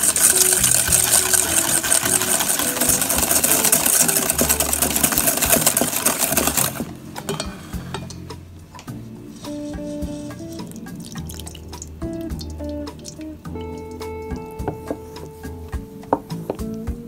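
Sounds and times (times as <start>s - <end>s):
whisk clattering in metal bowl: 0.0s - 8.2s.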